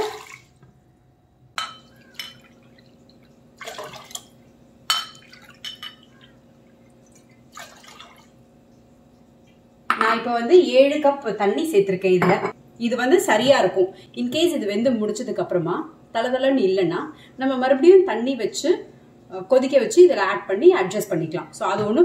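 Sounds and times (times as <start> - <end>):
water pouring and splashing: 0.0 - 0.5, 2.1 - 4.4, 5.1 - 5.8, 7.0 - 8.4.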